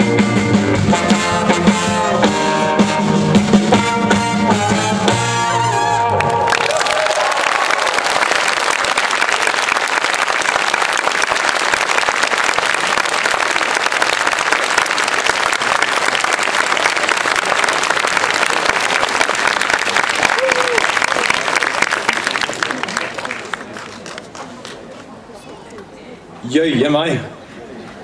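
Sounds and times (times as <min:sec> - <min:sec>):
large audience applauding: 0:06.1 - 0:25.1.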